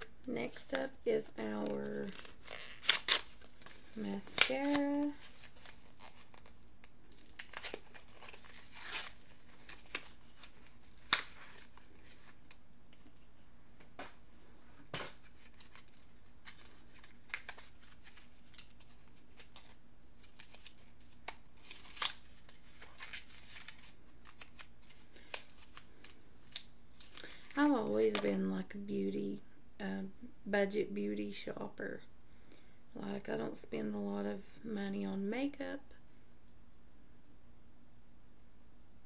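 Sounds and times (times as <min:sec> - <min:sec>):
packaging crinkling: 0:01.5 - 0:13.1, 0:15.1 - 0:28.2.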